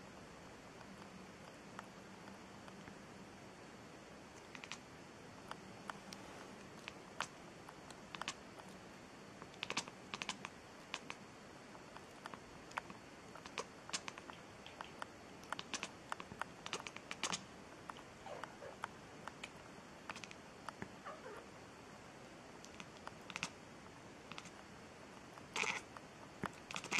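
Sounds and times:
cat jaw clicks: 0:08.1 - 0:08.4
cat chirps: 0:18.2 - 0:18.8, 0:21.0 - 0:21.5, 0:25.6 - 0:25.8.

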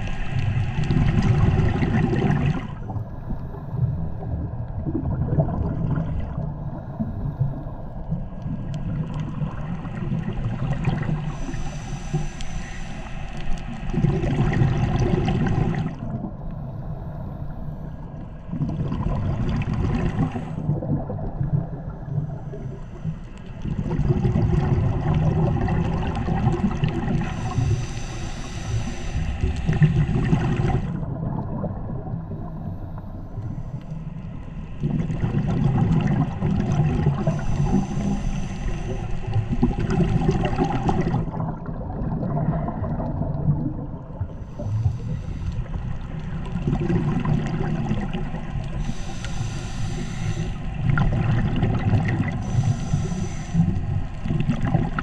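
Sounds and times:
underwater regulator bubbles gurgling: 0:00.0 - 0:55.0
regulator hiss: 0:11.3 - 0:13.8, 0:27.2 - 0:30.9, 0:37.2 - 0:39.6, 0:48.8 - 0:50.8, 0:52.4 - 0:53.9.

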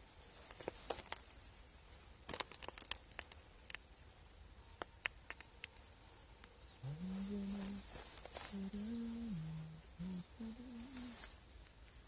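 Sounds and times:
crinkly rustles: 0:00.0 - 0:03.8, 0:07.1 - 0:08.8, 0:10.6 - 0:12.0
faint clicks: 0:00.5 - 0:12.0.

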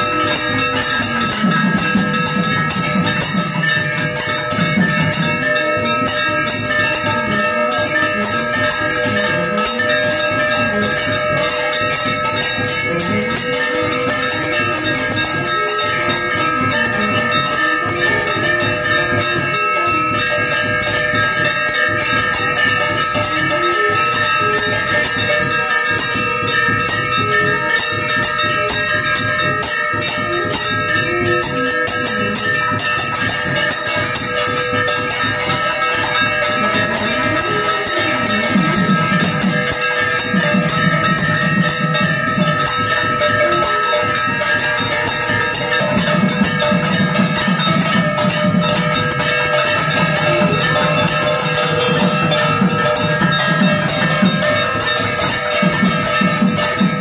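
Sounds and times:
temple bells ringing rapidly: 0:00.0 - 0:57.0.

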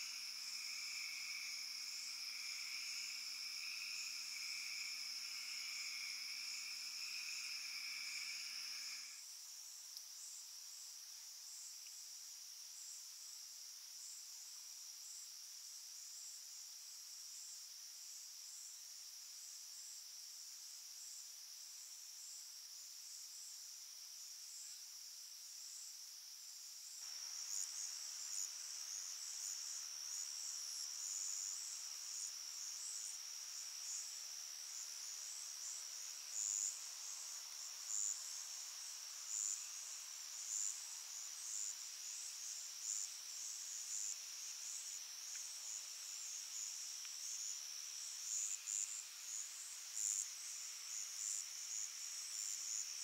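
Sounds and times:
crickets trilling: 0:00.0 - 0:09.8, 0:26.8 - 0:53.0.

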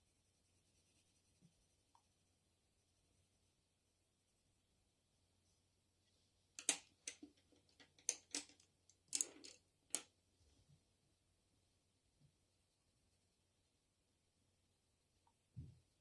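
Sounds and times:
wooden pencils clattering: 0:06.6 - 0:10.1.

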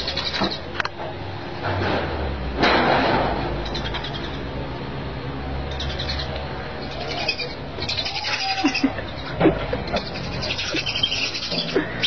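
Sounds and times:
birds chirping: 0:00.0 - 0:00.9, 0:03.6 - 0:04.6, 0:05.6 - 0:12.0
steady low hum: 0:00.0 - 0:12.0.

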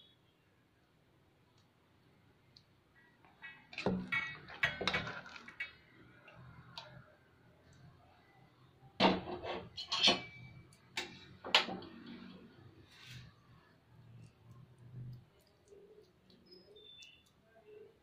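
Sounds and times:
plastic spoon clinking on metal pot: 0:03.8 - 0:05.8.

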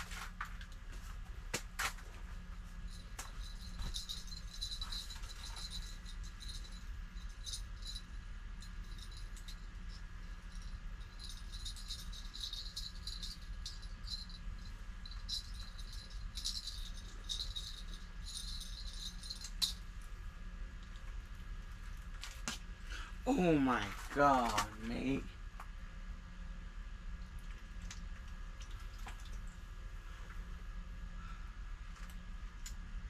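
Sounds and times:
heater and fan humming: 0:00.0 - 0:33.0
small bell jingling: 0:02.8 - 0:19.8.

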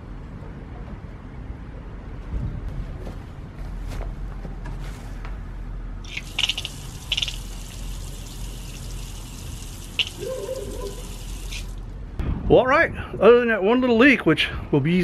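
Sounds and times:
water pouring from a faucet: 0:06.0 - 0:11.9.

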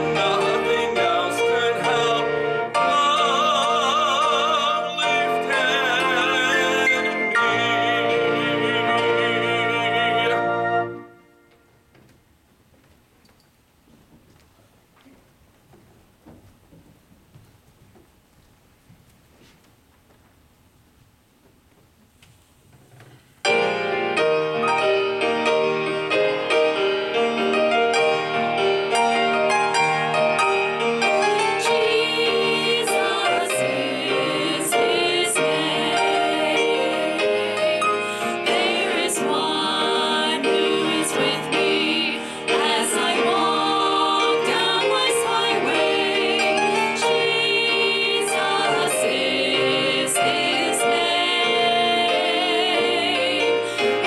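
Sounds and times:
women singing together: 0:00.0 - 0:10.9, 0:31.3 - 0:54.0
instrumental accompaniment: 0:00.0 - 0:12.2.

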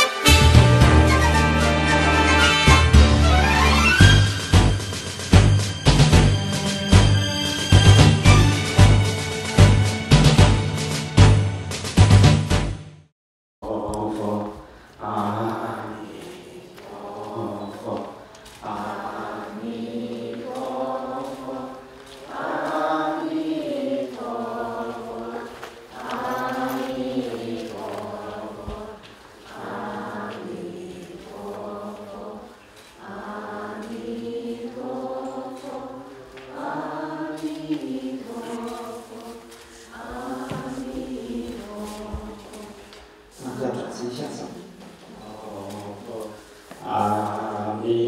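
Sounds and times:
group chanting in unison: 0:13.6 - 0:48.0.

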